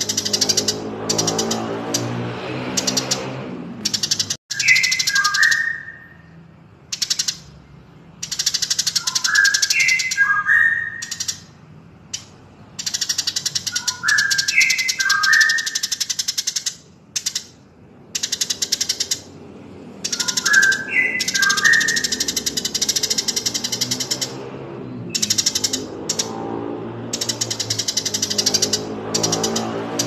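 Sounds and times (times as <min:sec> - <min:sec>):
birds chattering: 0:00.0 - 0:30.0
bird whistled notes: 0:04.0 - 0:06.3, 0:08.2 - 0:11.5, 0:12.8 - 0:17.4, 0:20.0 - 0:24.3, 0:25.1 - 0:26.3.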